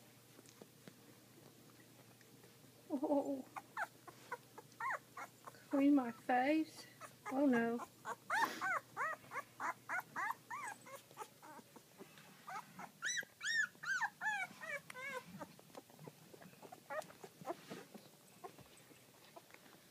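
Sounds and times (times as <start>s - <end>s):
puppies squeaking and whimpering: 3.3s - 6.2s, 6.8s - 19.5s.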